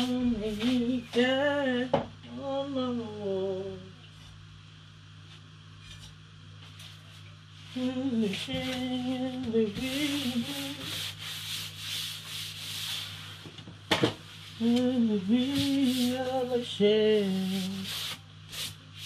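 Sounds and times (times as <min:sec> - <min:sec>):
cloth wiping a worktop: 0:09.8 - 0:13.5, 0:15.4 - 0:19.0.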